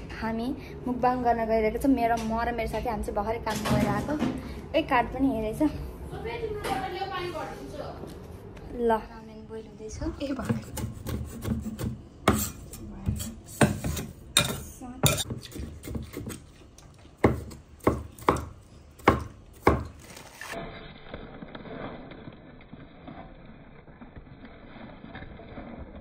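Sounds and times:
cleaver chopping on wooden board: 17.2 - 19.9.

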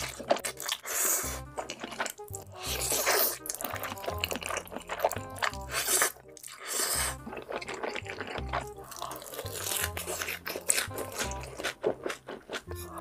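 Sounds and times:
wet slurping and chewing: 0.0 - 13.0.

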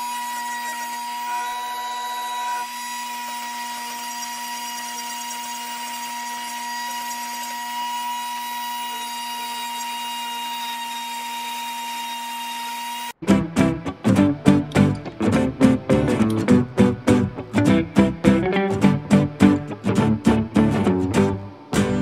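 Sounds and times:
rotary tool grinding wood: 0.0 - 13.2.

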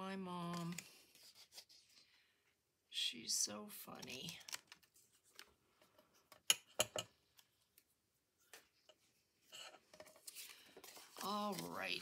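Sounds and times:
paper rustling: 10.1 - 12.0.

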